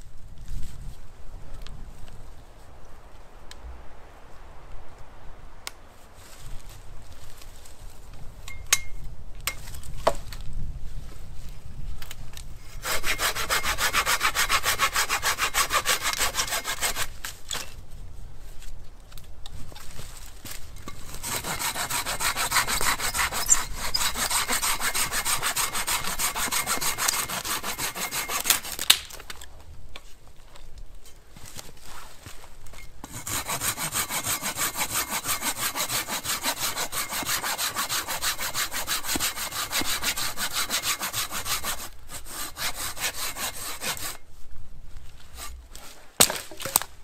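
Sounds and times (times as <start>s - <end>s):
hand saw cutting wood: 12.7s - 17.2s, 20.9s - 29.0s, 33.0s - 44.2s.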